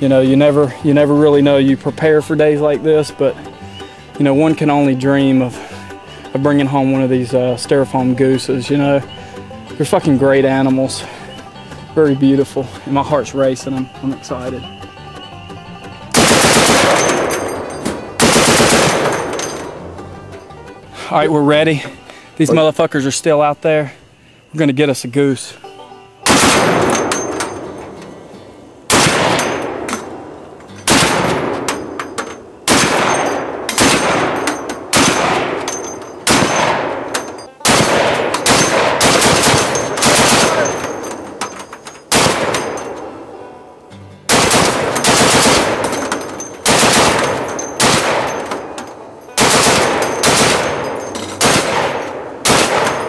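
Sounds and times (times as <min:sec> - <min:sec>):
heavy machine gun bursts: 0:16.1 - 0:19.7, 0:26.3 - 0:27.7, 0:28.9 - 0:30.1, 0:30.8 - 0:32.0, 0:32.6 - 0:43.0, 0:44.3 - 0:48.7, 0:49.4 - 0:53.0.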